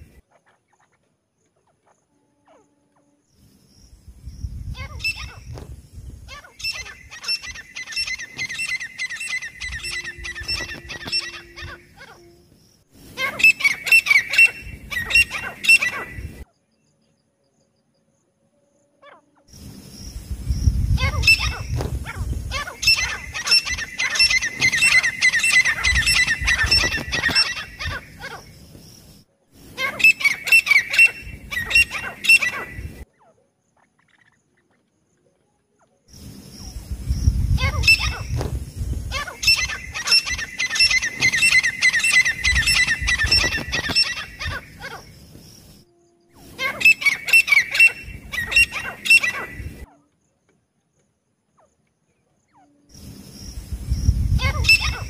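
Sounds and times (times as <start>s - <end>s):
francolins calling: 0.0s - 17.1s, 19.0s - 50.2s, 52.4s - 55.0s.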